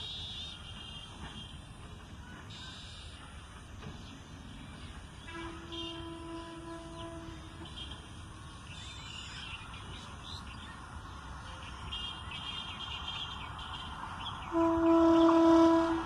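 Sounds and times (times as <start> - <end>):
locomotive horn: 5.2 - 8.0, 14.5 - 16.0.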